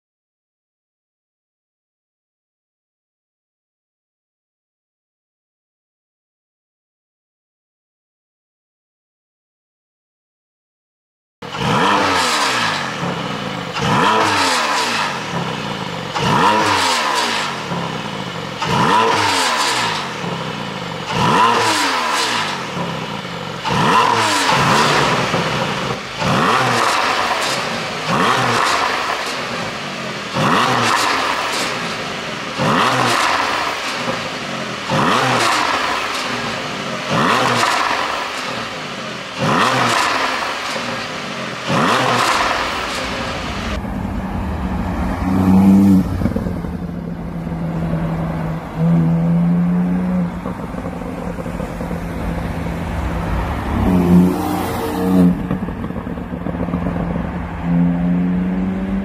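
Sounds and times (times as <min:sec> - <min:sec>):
car exhaust revving: 0:11.4 - 0:59.0
exhaust popping and crackling: 0:11.6 - 0:57.7.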